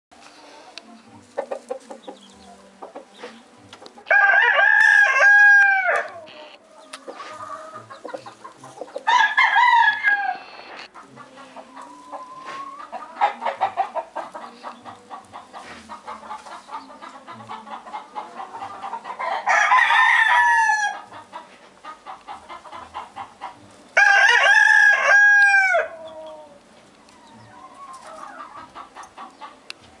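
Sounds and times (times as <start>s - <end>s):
hens clucking: 0.2s - 30.0s
rooster crowing: 4.1s - 6.2s, 9.1s - 10.8s, 19.2s - 21.1s, 24.0s - 26.4s.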